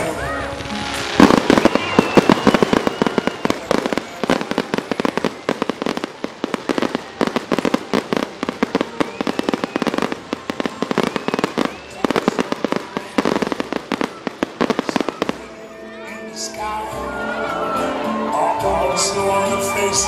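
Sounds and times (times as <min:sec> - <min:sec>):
fireworks bursting: 0:00.0 - 0:15.7.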